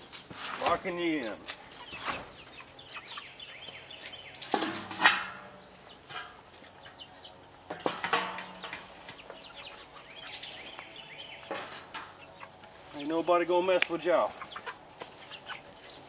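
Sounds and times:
high insect buzz: 0.0s - 16.0s
metal roofing sheet clattering: 4.5s - 6.4s.

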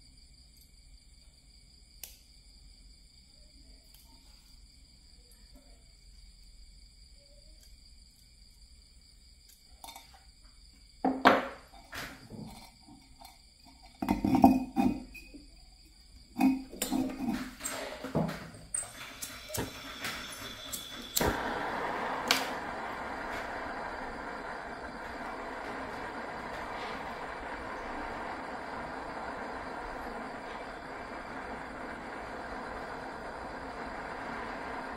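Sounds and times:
brick and tools clattering on concrete: 12.3s - 15.3s
gas torch hissing: 16.2s - 34.9s.

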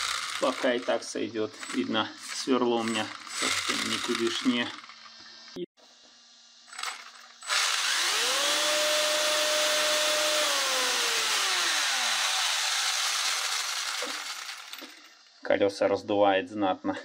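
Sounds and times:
electric motor whining: 0.0s - 0.6s, 7.5s - 14.4s.

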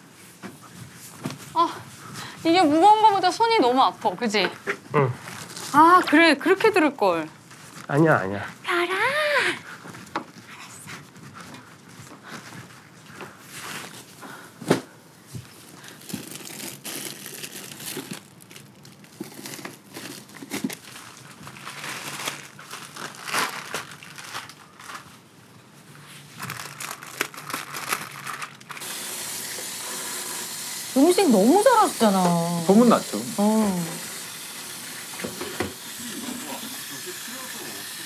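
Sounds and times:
plastic bags rustling: 5.2s - 6.1s, 7.4s - 8.5s, 11.0s - 28.8s
sink tap running: 28.8s - 38.0s.

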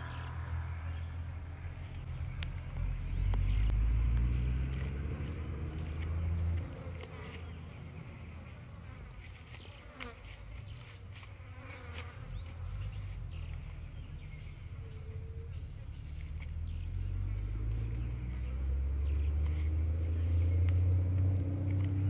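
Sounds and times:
low rumble: 0.0s - 6.6s.

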